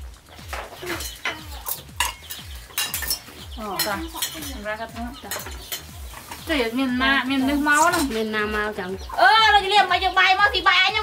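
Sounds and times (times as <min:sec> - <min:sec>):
spoon and china bowls clinking: 0:00.8 - 0:06.4.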